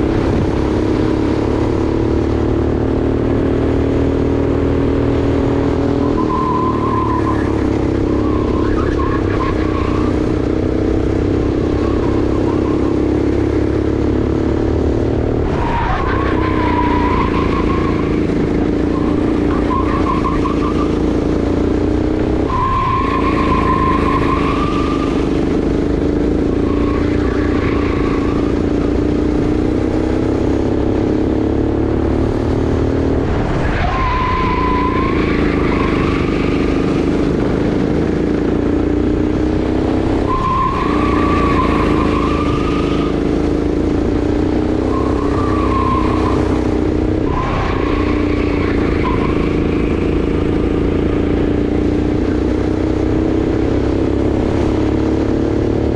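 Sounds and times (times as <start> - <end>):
kart engine revving: 0.0 - 55.9
tyres squealing: 15.4 - 21.5, 22.4 - 28.8, 33.6 - 37.2, 40.1 - 43.8, 44.7 - 51.1.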